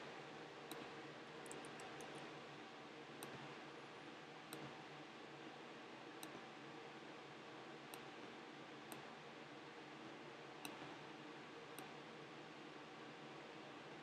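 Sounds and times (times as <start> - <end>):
low hiss of room tone: 0.0 - 14.0
computer mouse clicks: 0.7 - 2.3, 3.2 - 3.5, 6.2 - 6.4, 7.9 - 8.1, 10.6 - 10.9.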